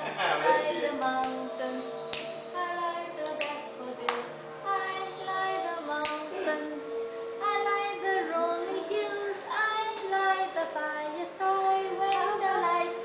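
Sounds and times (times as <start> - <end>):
steady held backing tone: 0.0 - 13.0
high child-like singing: 0.2 - 13.0
hand clap: 1.0 - 1.5, 2.1 - 2.5, 3.2 - 5.1, 6.0 - 6.3, 12.1 - 12.4.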